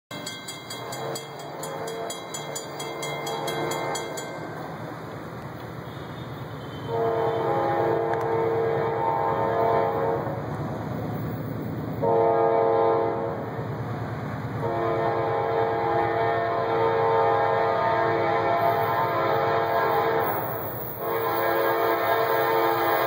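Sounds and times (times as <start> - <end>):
crossing bell dinging: 0.1 - 5.3
train horn blasts: 0.8 - 2.6, 5.8 - 10.5, 12.0 - 13.4, 14.6 - 23.0.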